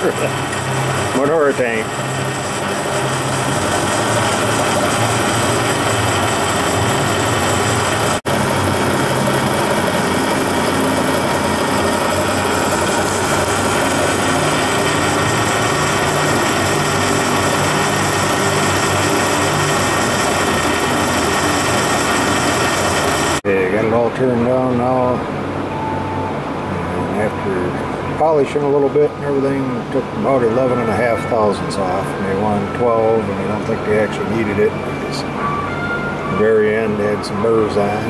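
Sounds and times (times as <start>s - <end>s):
metal lathe running: 0.0s - 24.0s, 27.0s - 35.4s, 36.2s - 38.0s.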